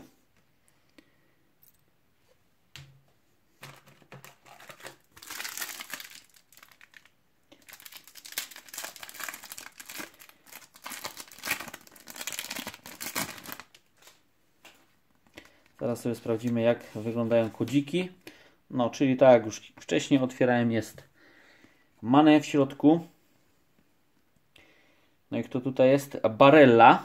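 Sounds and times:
foil wrapper crinkling: 3.6 - 14.2.

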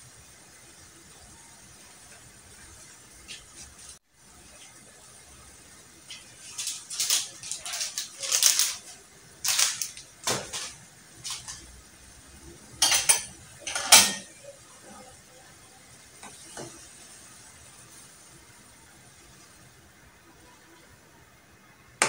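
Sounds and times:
metal utensils clinking on plate: 9.5 - 11.6, 12.8 - 14.4.

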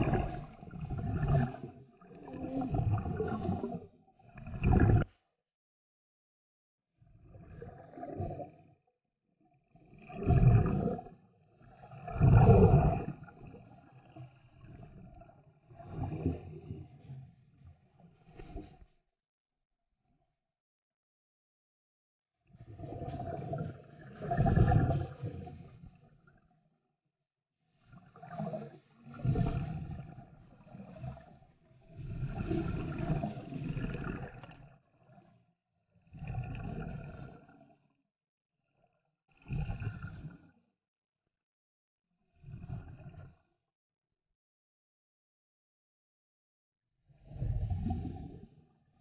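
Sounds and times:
air bubbles rushing underwater: 0.0 - 5.1, 7.2 - 8.6, 9.6 - 17.0, 22.6 - 26.4, 27.8 - 35.3, 36.0 - 37.6, 39.4 - 40.5, 42.4 - 43.4, 47.2 - 48.5.

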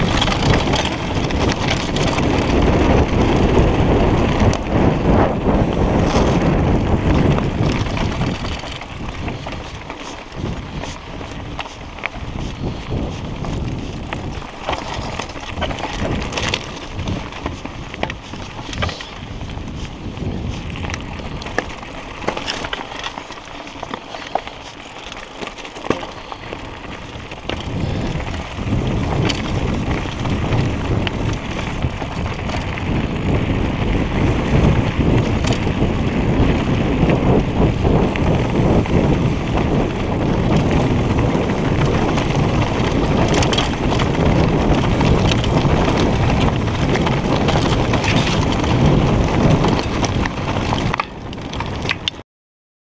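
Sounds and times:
tyres crunching over stones: 0.0 - 3.4, 5.7 - 33.2
bike rattling over rocks: 0.0 - 52.2
wind buffeting microphone: 0.0 - 52.2.

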